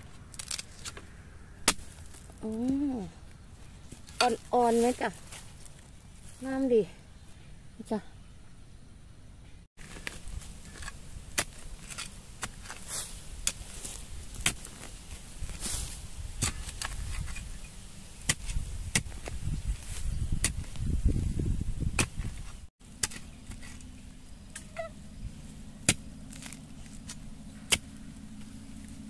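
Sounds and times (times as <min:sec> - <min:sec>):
hoe striking soil: 0:00.0 - 0:02.3, 0:09.8 - 0:20.9, 0:21.9 - 0:29.0
soil being scraped: 0:09.8 - 0:29.0.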